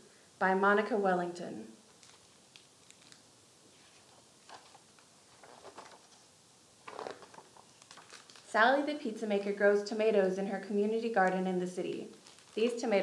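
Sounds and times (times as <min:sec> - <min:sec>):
book pages rustling: 0:01.9 - 0:08.5, 0:11.9 - 0:13.0.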